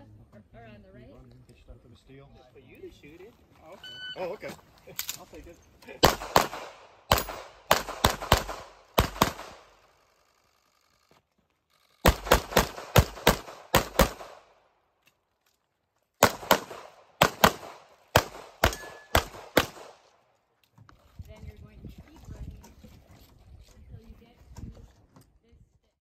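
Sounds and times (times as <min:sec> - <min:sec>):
pistol shots with echo: 0:06.0 - 0:09.8, 0:12.1 - 0:14.5, 0:16.2 - 0:20.0.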